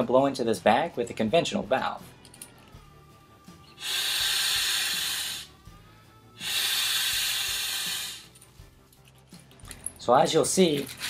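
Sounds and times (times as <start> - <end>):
breath blown into inflatable bag: 3.6 - 5.8, 6.4 - 8.4.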